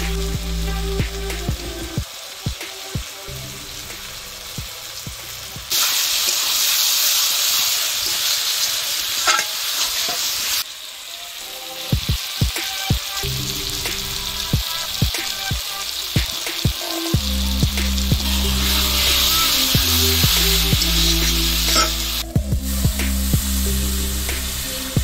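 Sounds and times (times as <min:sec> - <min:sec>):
food sizzling in a pan: 0:00.1 - 0:25.0
metal spatula scraping a pan: 0:09.2 - 0:10.5, 0:21.7 - 0:22.0.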